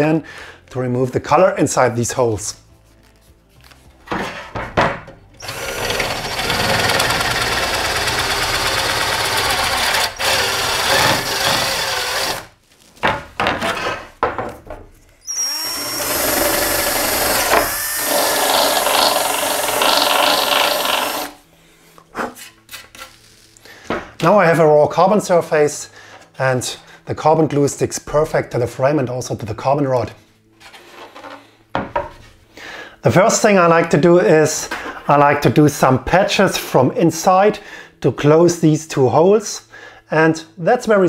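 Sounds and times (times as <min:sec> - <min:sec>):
cordless drill drilling: 0:05.4 - 0:12.5, 0:15.2 - 0:21.4.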